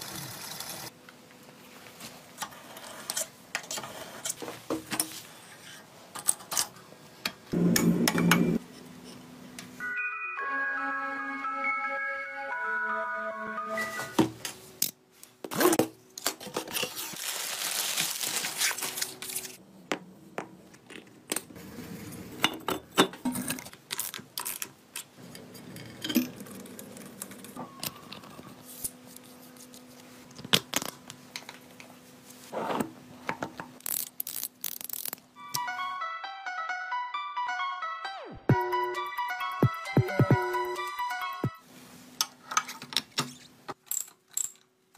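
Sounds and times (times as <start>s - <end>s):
metal parts clinking: 43.8s - 44.7s.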